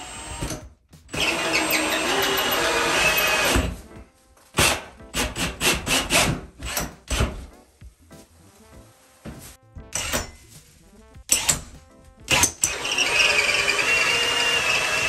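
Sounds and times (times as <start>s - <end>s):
drill cutting through drywall: 0.0s - 3.8s, 4.6s - 7.4s, 10.0s - 10.3s, 11.3s - 11.7s, 12.3s - 15.0s.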